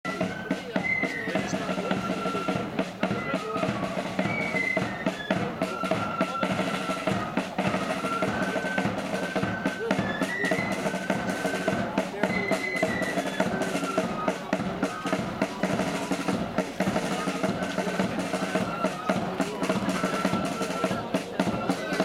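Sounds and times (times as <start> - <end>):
flute melody: 0.0 - 22.0
side drum rolls: 0.1 - 22.0.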